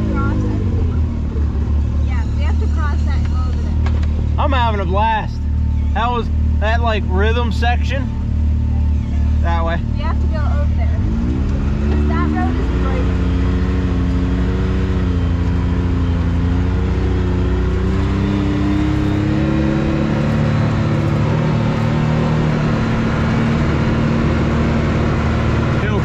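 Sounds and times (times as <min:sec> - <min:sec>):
engine revving while driving: 0:00.0 - 0:26.0.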